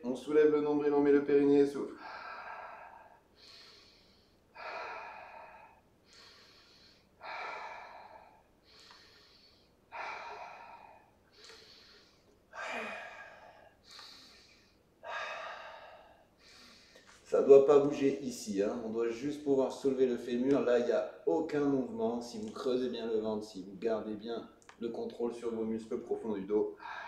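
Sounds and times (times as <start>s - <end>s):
man breathing slowly: 2.0s - 17.3s, 26.7s - 27.0s.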